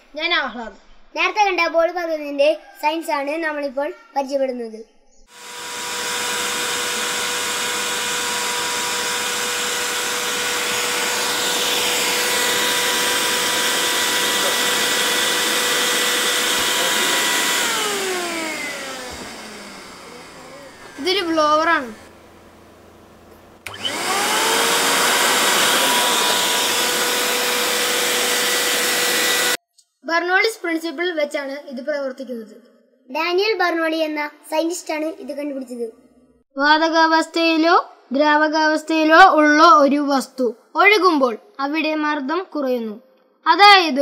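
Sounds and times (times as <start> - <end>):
electric air blower running: 5.3 - 29.6.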